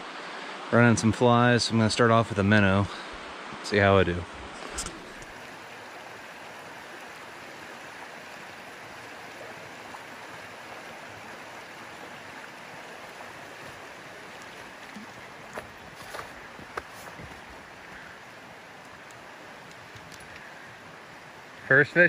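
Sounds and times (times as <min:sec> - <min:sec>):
stream flowing over rocks: 0:00.0 - 0:22.0
light clicks: 0:18.8 - 0:20.5.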